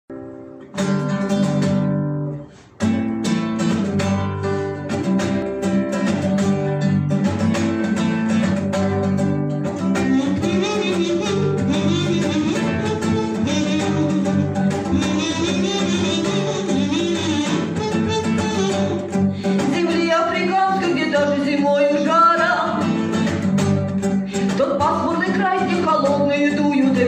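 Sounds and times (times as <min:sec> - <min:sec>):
acoustic guitar strumming: 0:00.1 - 0:27.0
wavering melody with vibrato: 0:10.0 - 0:21.2.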